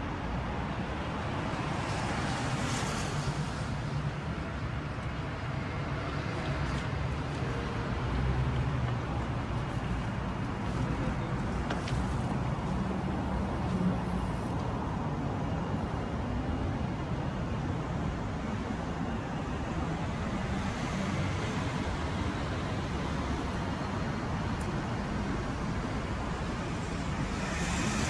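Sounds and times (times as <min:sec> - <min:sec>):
city street traffic rumble: 0:00.0 - 0:28.0.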